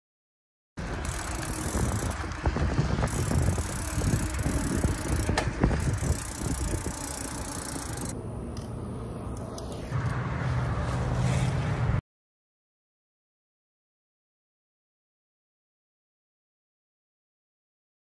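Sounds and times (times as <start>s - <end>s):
wind rushing on microphone: 0.8s - 8.1s
bicycle drivetrain rattles and clicks: 0.8s - 8.2s
bicycle tyre noise: 0.8s - 8.2s.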